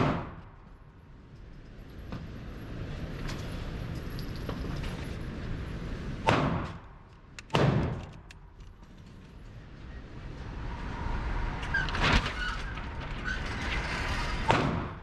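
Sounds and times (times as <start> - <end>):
gunshot: 0.0 - 0.4, 6.2 - 6.8, 7.5 - 8.0, 14.5 - 15.0
sharp crack: 6.2 - 8.4.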